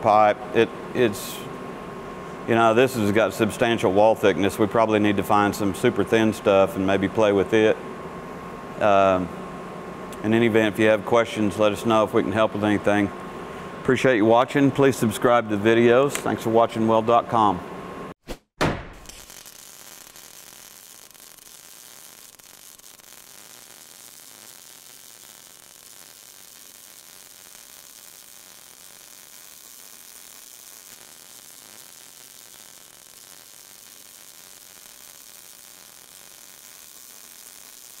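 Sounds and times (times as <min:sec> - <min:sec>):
welding arc sizzling: 0:19.0 - 0:38.0.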